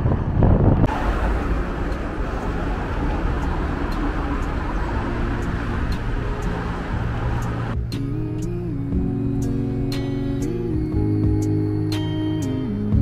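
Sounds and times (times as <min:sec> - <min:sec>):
wind buffeting microphone: 0:00.0 - 0:07.8
passing electric train: 0:00.0 - 0:12.9
road traffic: 0:00.0 - 0:13.0.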